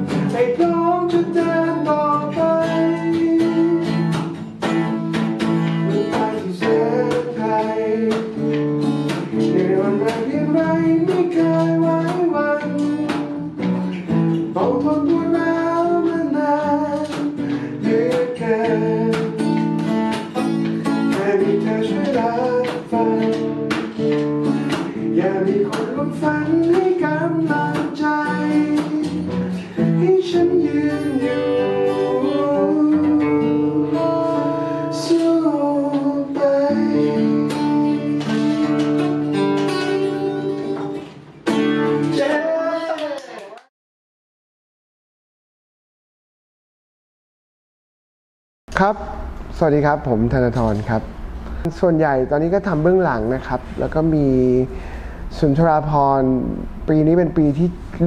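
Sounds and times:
man singing: 0.0s - 4.4s, 5.6s - 13.6s, 14.4s - 19.8s, 20.8s - 24.1s, 24.7s - 41.0s, 42.0s - 43.3s
acoustic guitar strumming: 0.0s - 42.9s.

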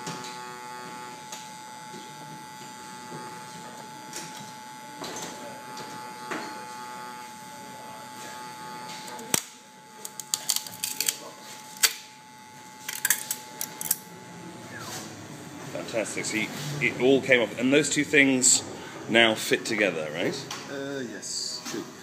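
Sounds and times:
plastic clicking and cracking: 9.2s - 11.2s.

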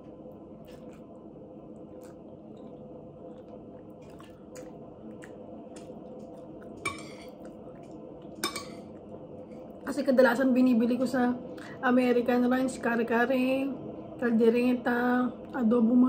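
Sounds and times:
chewing with wet mouth smacks: 0.0s - 9.8s
metal spoon clinking on plate: 6.9s - 7.3s, 8.4s - 8.8s.

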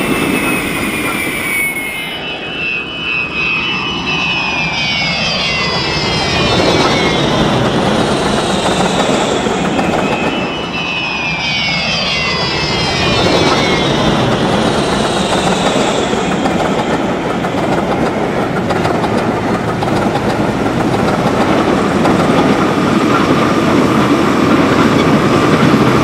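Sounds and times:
model locomotive turbine whine: 0.0s - 26.0s
wheels rumbling on track: 6.0s - 10.8s, 12.5s - 26.0s.

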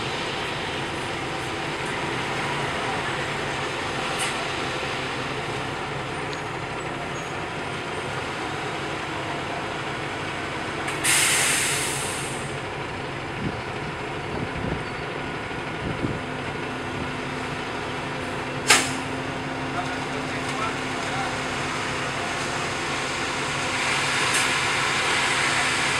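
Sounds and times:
heavy engine running: 0.0s - 25.9s
compressed air hiss: 11.0s - 12.5s.

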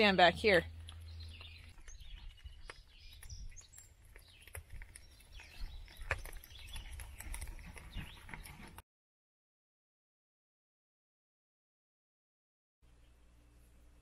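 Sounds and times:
wood fire crackling: 0.3s - 8.8s
sharp pops from fire: 0.8s - 7.6s.

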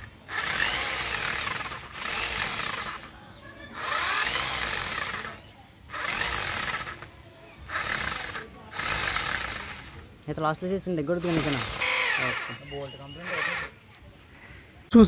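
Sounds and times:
electric drill driving bolts: 0.0s - 3.1s, 3.8s - 7.1s, 7.7s - 10.0s, 11.2s - 13.7s.

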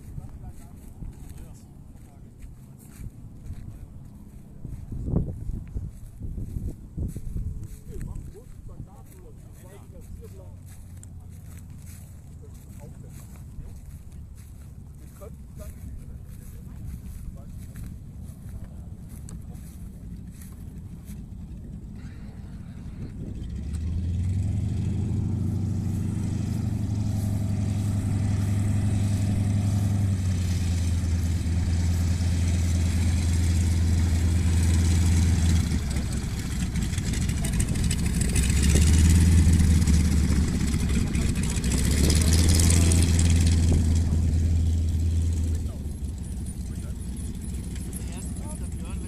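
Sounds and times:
light plane piston engine: 19.8s - 49.0s.

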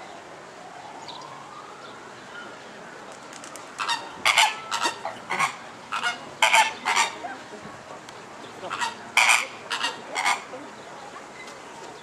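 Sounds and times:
flamingos honking: 3.8s - 7.5s, 8.4s - 10.7s.

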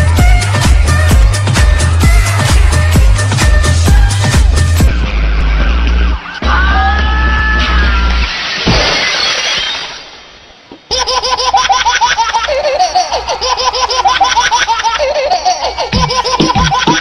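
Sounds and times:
dance music over speakers: 0.0s - 8.4s
high-pitched laugh-like chirps: 10.9s - 17.0s.

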